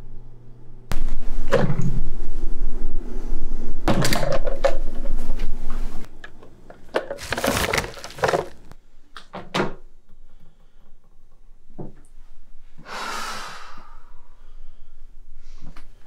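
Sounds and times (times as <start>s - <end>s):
trash can rustling and clicking: 7.0s - 8.7s.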